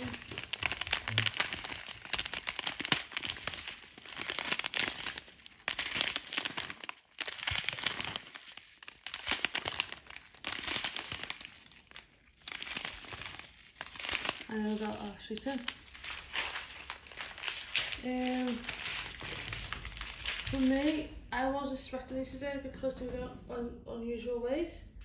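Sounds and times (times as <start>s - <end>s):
plastic bags crinkling: 0.0s - 21.2s.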